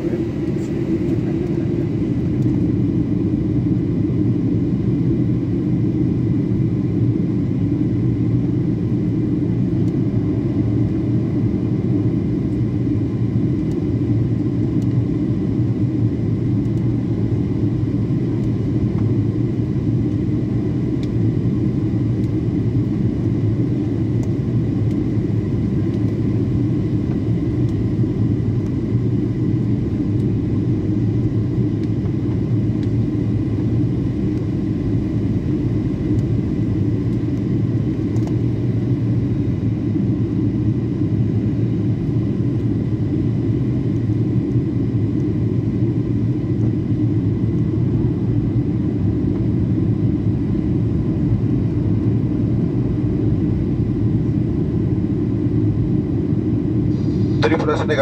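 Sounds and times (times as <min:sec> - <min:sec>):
airplane cabin engine noise: 0:00.0 - 0:58.0.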